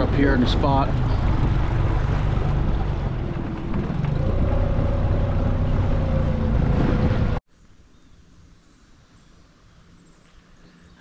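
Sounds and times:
outboard motor running: 0.0s - 7.4s.

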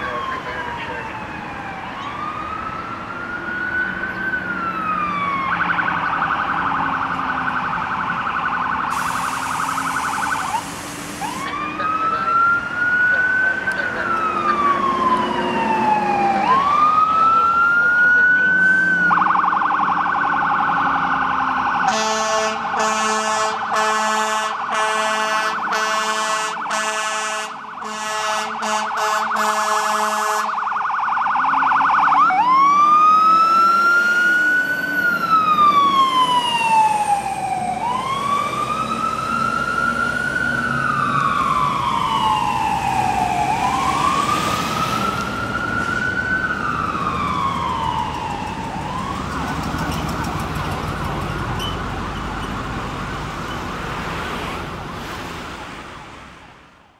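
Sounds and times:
fire engine siren wailing: 0.0s - 56.3s
air horn blasts: 21.9s - 30.6s.

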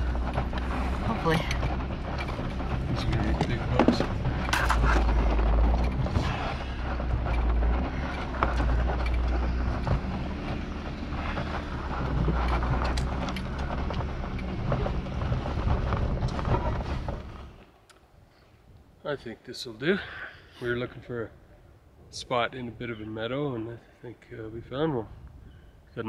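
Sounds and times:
clicks and rattles: 0.0s - 18.0s
engine and tyre rumble: 0.0s - 19.0s, 20.6s - 26.0s.

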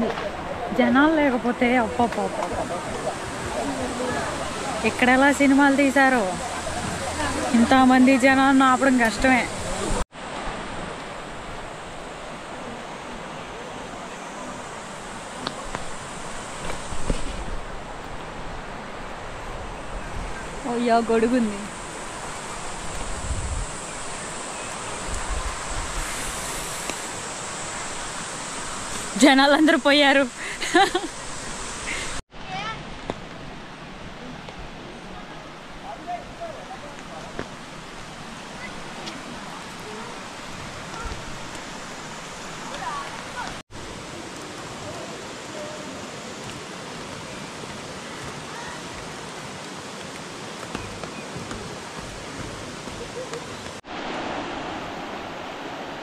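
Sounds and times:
steady outdoor rushing noise: 0.0s - 56.0s
wind buffeting microphone: 16.8s - 24.2s.

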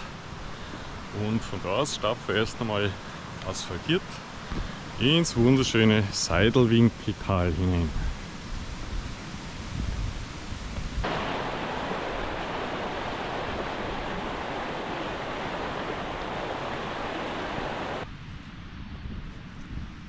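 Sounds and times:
outdoor ambience: 7.6s - 20.0s
running water rushing: 11.0s - 18.0s.

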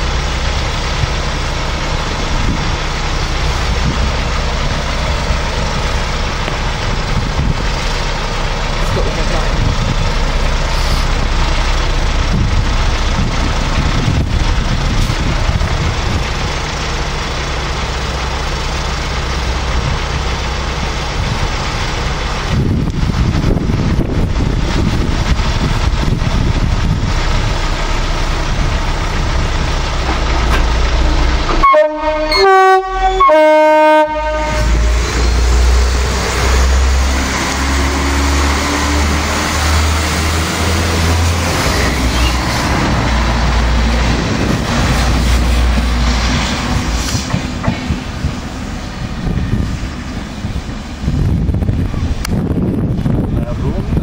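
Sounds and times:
diesel engine running: 0.0s - 54.0s
train horn blasts: 31.0s - 35.1s.

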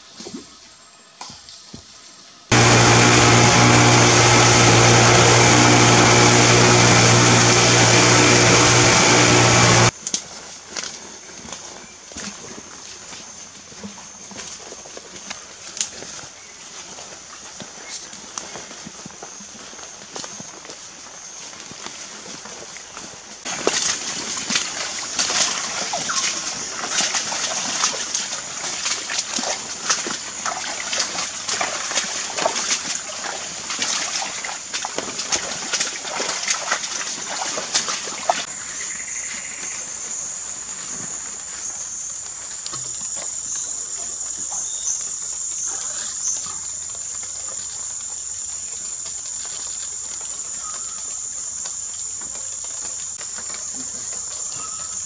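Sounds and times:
splashy taps and clicks: 23.5s - 38.5s.

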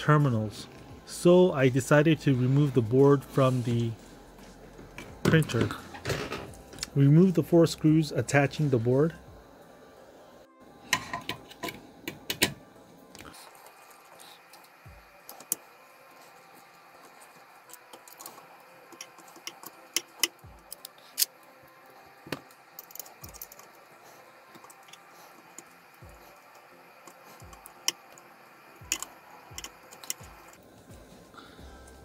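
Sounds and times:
screwdriver on screws: 28.8s - 30.5s.

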